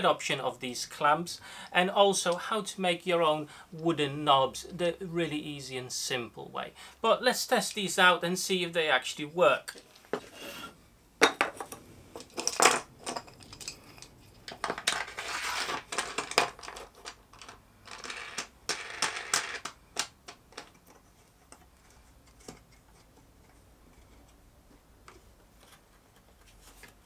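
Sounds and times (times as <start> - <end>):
wooden clamp blocks clattering: 11.2 - 24.4.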